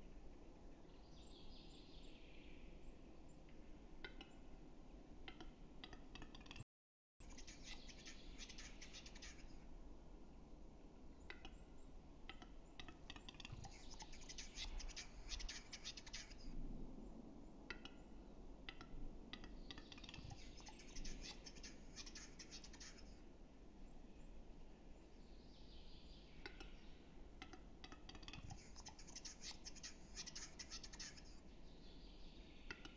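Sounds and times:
bird scratchy clicking song: 3.4s - 4.5s, 5.2s - 6.6s, 7.2s - 9.6s, 11.2s - 16.5s, 17.7s - 23.2s, 26.3s - 31.4s, 32.6s - 32.9s.

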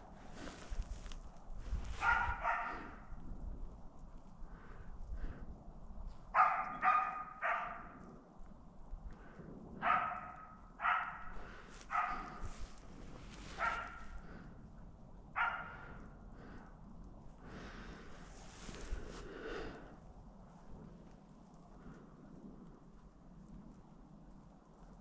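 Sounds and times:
distant dog barking: 1.8s - 3.2s, 6.3s - 8.1s, 9.8s - 14.5s, 15.3s - 16.2s.

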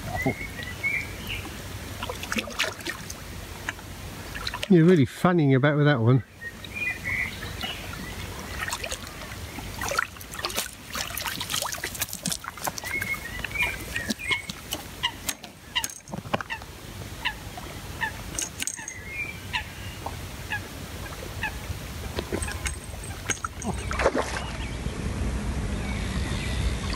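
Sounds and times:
steady low rumble: 18.9s - 26.9s.

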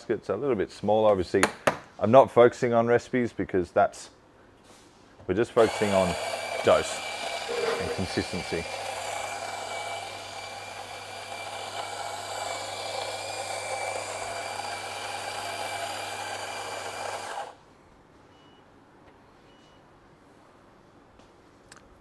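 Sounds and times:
coffee grinder motor whine: 5.6s - 17.6s.

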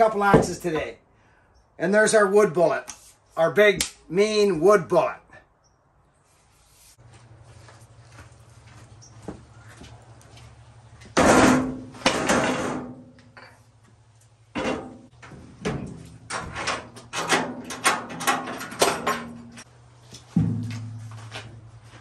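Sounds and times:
metal truck bed clanking: 11.2s - 13.1s, 14.5s - 19.5s.

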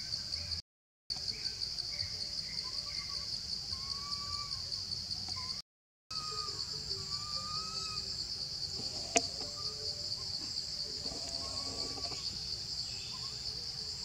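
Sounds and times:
insects chorus: 0.0s - 14.0s
faint whistled calls: 1.4s - 14.0s.

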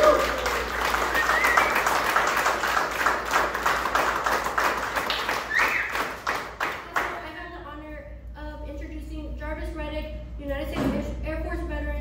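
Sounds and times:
vocal whoop: 0.0s - 0.6s
audience applauding: 0.0s - 7.1s.

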